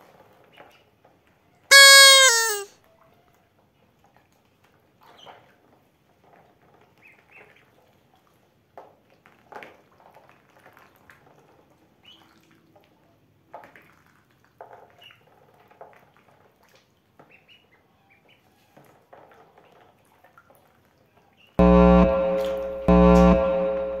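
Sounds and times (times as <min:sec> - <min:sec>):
ducklings peeping: 0:01.7 - 0:02.7
loud tonal blasts: 0:01.7 - 0:02.7, 0:21.6 - 0:24.0.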